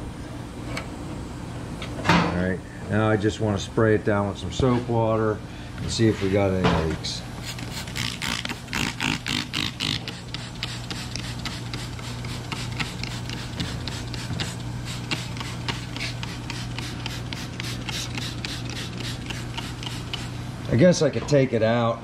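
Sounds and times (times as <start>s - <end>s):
steady low hum: 0.0s - 22.0s
spray bottle squirting: 7.4s - 20.3s.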